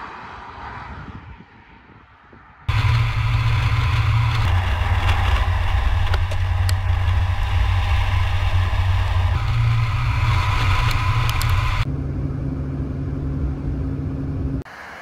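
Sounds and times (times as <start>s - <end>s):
tyre and road noise: 0.0s - 14.7s
car exhaust rumble: 2.7s - 14.7s.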